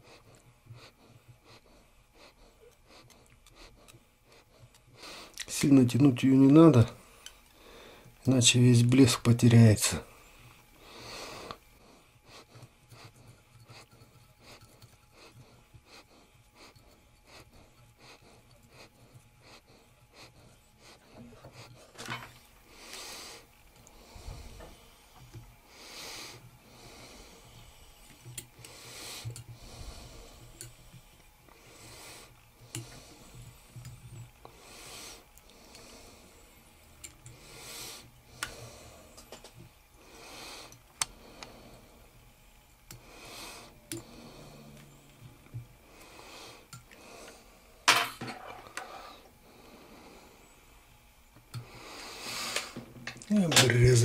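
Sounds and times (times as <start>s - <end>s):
person breathing close to microphone: 6.9s - 8.2s, 9.9s - 30.8s, 42.9s - 47.8s.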